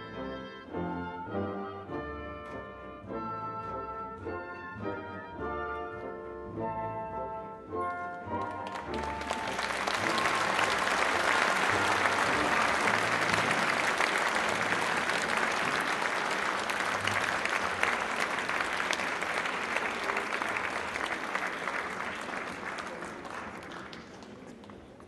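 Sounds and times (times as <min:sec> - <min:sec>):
audience applauding: 0:08.3 - 0:25.0.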